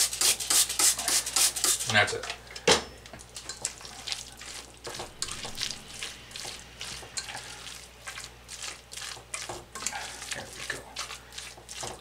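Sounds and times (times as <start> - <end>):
spoon stirring wet salad: 3.1 - 12.0.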